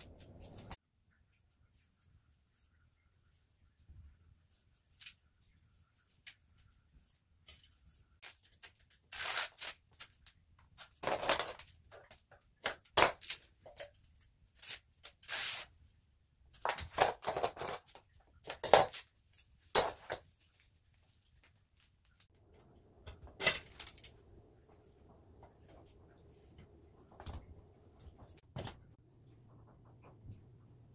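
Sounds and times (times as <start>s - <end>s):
adhesive tape peeling scratchy bursts: 9.0s - 10.2s, 14.6s - 15.7s.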